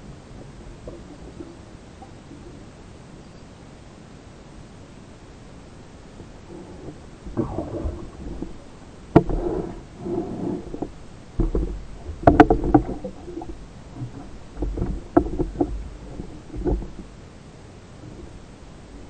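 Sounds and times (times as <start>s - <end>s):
water swishing: 0.0s - 3.2s, 3.9s - 19.0s
muffled underwater knocks and clicks: 0.1s - 2.6s, 6.5s - 17.2s.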